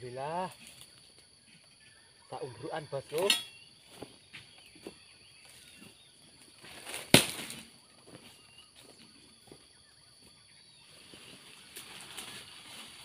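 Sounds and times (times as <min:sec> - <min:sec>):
high insect hum: 0:00.0 - 0:13.0
footsteps rustling through undergrowth: 0:03.7 - 0:13.0
frond crashing onto heap: 0:06.8 - 0:07.7.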